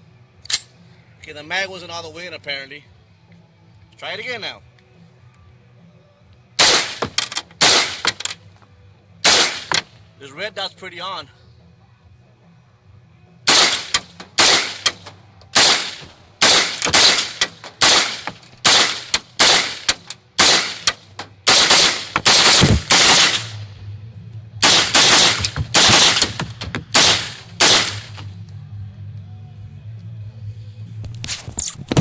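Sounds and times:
rifle shots echoing: 0:06.6 - 0:08.4, 0:09.2 - 0:09.9, 0:13.5 - 0:23.6, 0:24.6 - 0:28.2.

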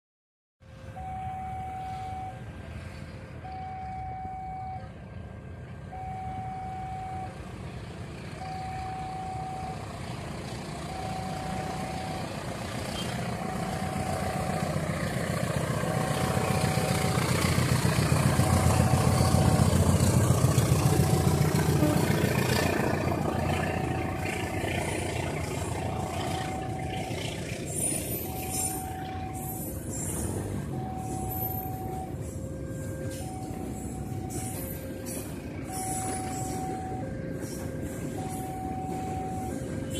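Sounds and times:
freight train rumble: 0:00.6 - 0:39.9
level crossing warning signal: 0:00.7 - 0:39.9.

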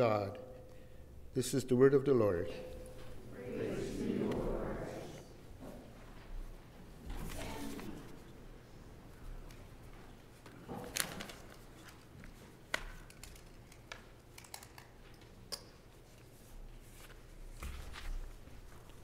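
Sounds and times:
people shifting in wooden pews: 0:02.5 - 0:14.2, 0:14.9 - 0:19.0
papers and books handled: 0:09.4 - 0:15.2, 0:16.0 - 0:19.0.

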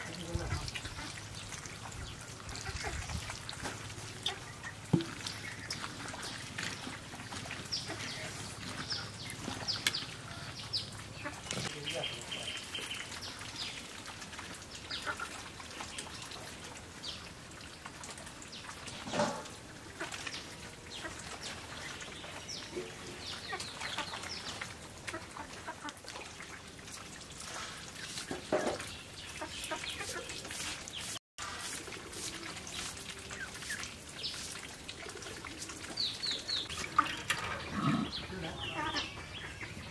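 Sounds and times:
chickens clucking: 0:00.1 - 0:13.0, 0:27.6 - 0:39.9.

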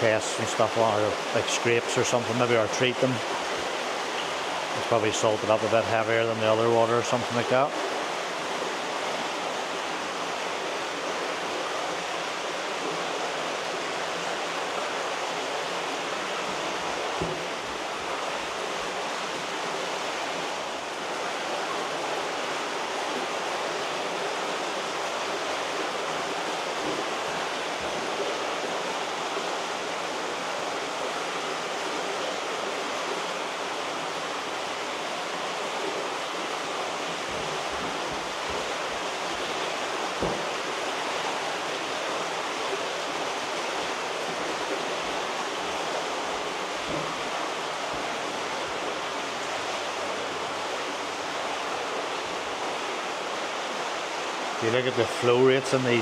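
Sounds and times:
water rushing in tanks: 0:00.0 - 0:56.0
faint low knock: 0:17.2 - 0:17.5, 0:40.2 - 0:40.5.

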